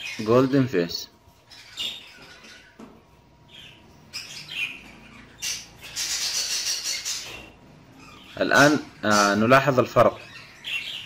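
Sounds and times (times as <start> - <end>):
budgerigar chirping and warbling: 1.5 - 2.8, 3.5 - 11.0.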